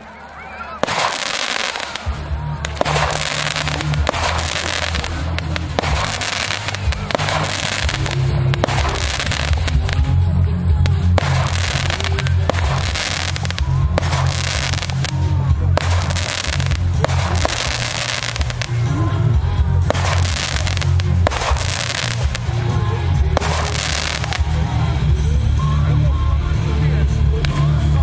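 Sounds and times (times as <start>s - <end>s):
firework shells cracking: 0.8s - 10.1s, 11.1s - 18.9s, 19.9s - 22.7s, 23.4s - 24.5s
fireworks hissing: 0.8s - 25.1s
music with heavy bass: 0.8s - 28.0s.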